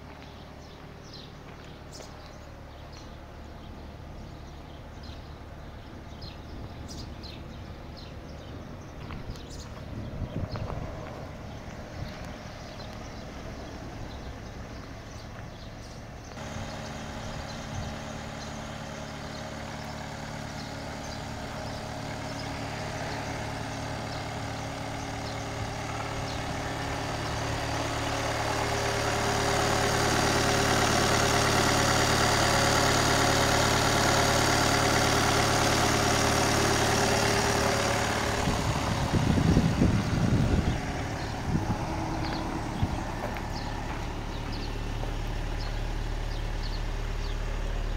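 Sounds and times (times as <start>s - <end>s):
diesel engine idling: 0.0s - 47.9s
low buffeting bumps: 37.7s - 46.8s.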